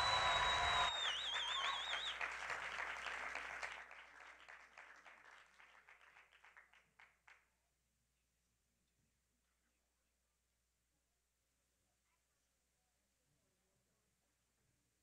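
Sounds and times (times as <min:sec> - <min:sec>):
congregation applauding: 0:00.0 - 0:07.4.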